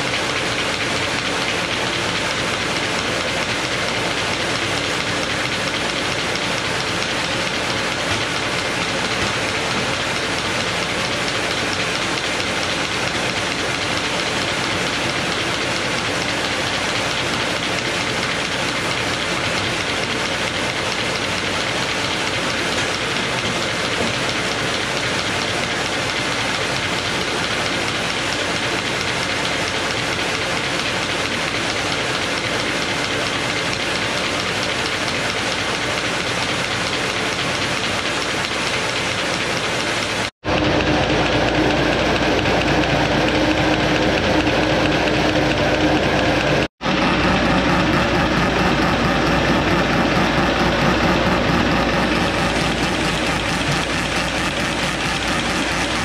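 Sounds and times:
paper folding machine rattling: 0.0s - 56.0s.

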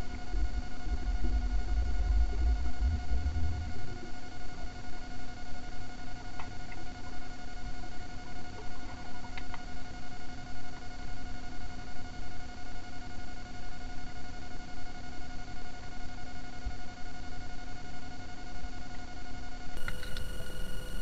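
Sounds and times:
steady hum: 0.0s - 16.6s, 19.6s - 21.0s
low rumbling water noise: 0.3s - 4.2s
faint clicks: 19.8s - 21.0s.

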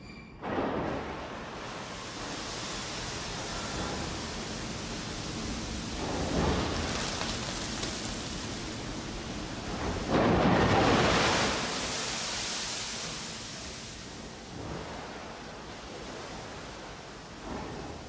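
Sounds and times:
coal pouring into a pit: 6.0s - 13.6s.

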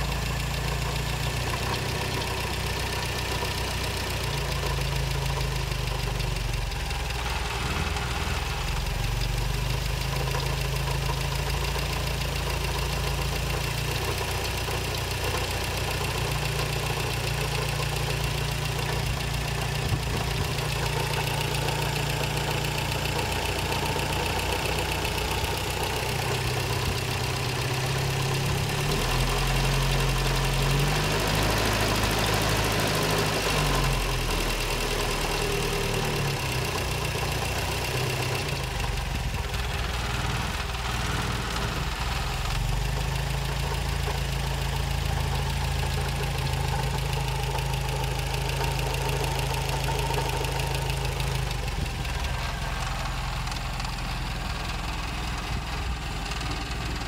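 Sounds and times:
car engine idling with a knock: 18.7s - 21.8s.

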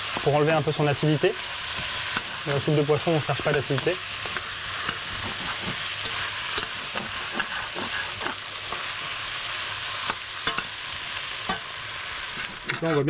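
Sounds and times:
food sizzling in a saucepan: 0.0s - 13.0s
metal ladle scraping and knocking pan: 3.0s - 9.0s, 10.0s - 10.8s.

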